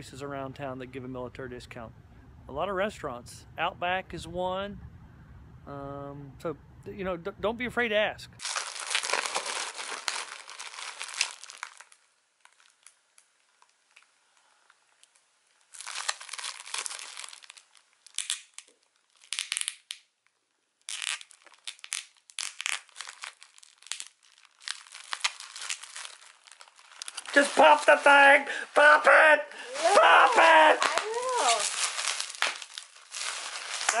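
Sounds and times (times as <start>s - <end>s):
bubble wrap crinkling: 8.4s - 34.0s.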